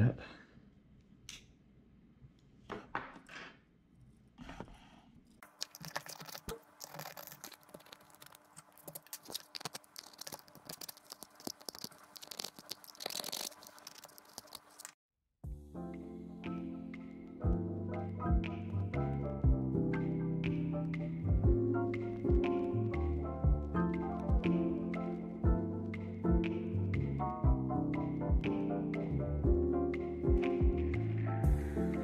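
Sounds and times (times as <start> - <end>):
plastic crackling and scraping: 5.4 - 15.0.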